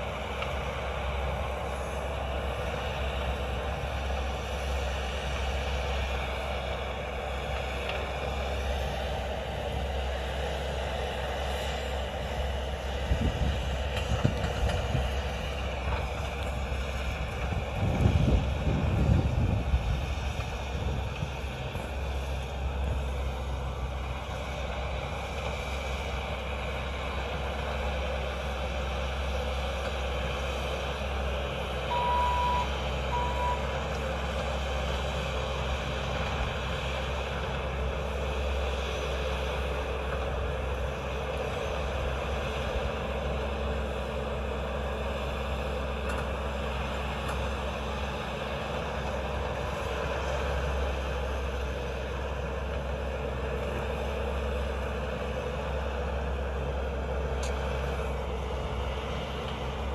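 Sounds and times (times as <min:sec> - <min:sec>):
distant diesel engine running: 0:00.0 - 0:59.9
backup alarm beeps: 0:31.9 - 0:33.7.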